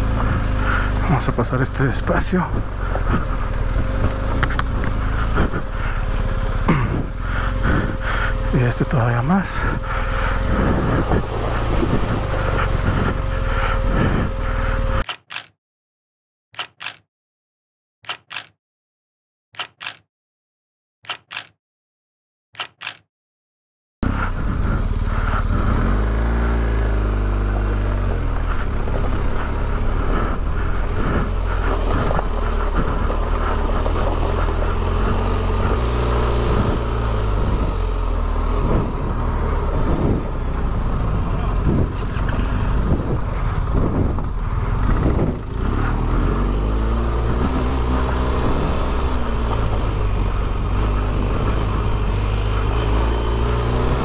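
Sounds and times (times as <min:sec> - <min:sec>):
motorcycle engine revving: 0:00.0 - 0:15.1, 0:24.0 - 0:54.0
wind noise: 0:06.7 - 0:08.3, 0:09.6 - 0:14.7, 0:24.1 - 0:26.3, 0:27.3 - 0:53.7.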